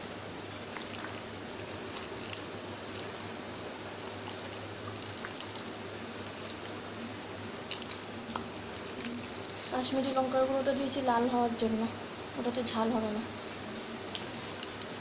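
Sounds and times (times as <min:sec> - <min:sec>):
hand squelching marinade: 0:00.0 - 0:12.2, 0:13.6 - 0:15.0.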